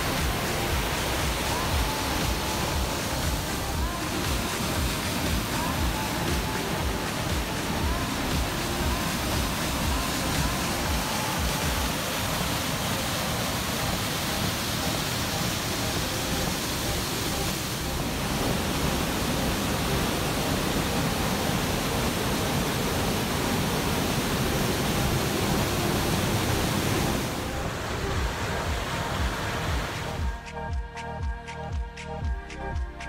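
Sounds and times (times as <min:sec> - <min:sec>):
water rushing through gorge: 0:00.0 - 0:30.3.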